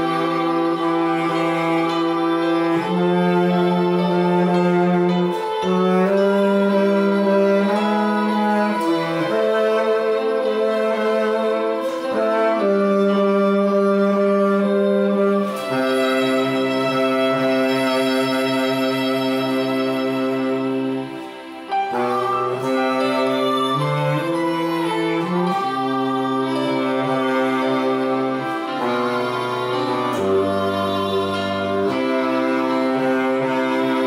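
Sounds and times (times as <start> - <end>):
bass saxophone hymn melody: 0.0 - 34.0.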